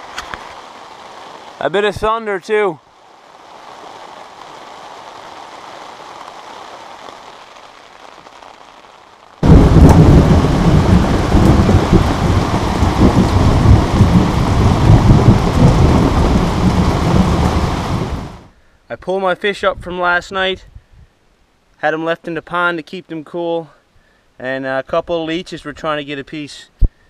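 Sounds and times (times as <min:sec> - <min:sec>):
heavy rain on wooden deck: 0:00.0 - 0:18.6
thunder rumble: 0:09.4 - 0:18.5.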